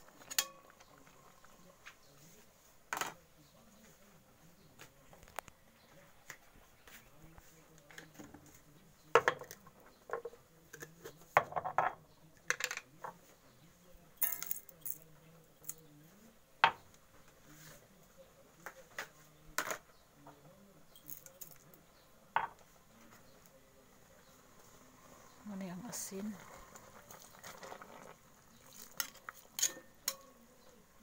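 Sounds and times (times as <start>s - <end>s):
metal kitchenware clinking: 0.2s - 1.1s, 14.2s - 15.0s, 28.7s - 30.5s.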